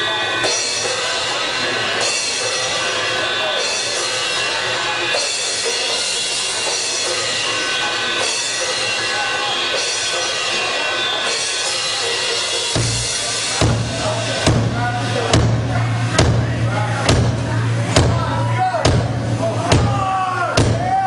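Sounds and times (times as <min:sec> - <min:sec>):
cymbals washing: 0:00.0 - 0:21.0
drum solo: 0:11.2 - 0:21.0
heavy bass drum strokes: 0:11.9 - 0:21.0.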